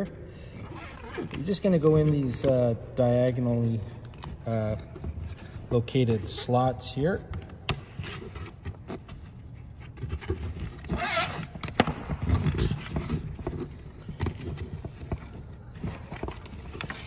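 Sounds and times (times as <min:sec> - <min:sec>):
nylon strap rustling and sliding: 0:07.9 - 0:11.6.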